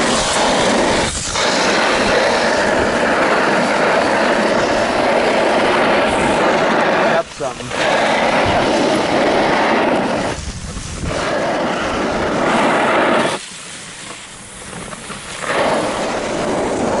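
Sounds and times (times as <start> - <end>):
sled runners scraping on snow: 0.0 - 17.0.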